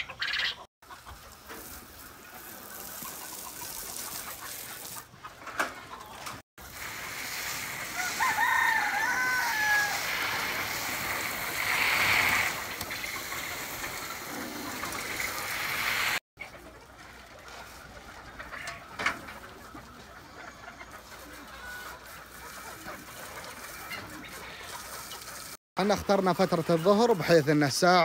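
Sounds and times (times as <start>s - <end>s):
chickens clucking: 0.0s - 28.0s
water spray hiss: 1.3s - 5.0s, 6.6s - 16.2s
rooster crowing: 7.9s - 10.3s.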